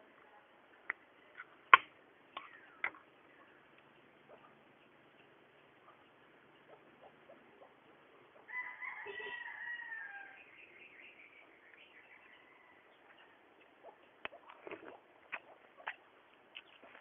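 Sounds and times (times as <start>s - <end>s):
rooster crowing: 8.5s - 10.6s, 12.2s - 13.4s.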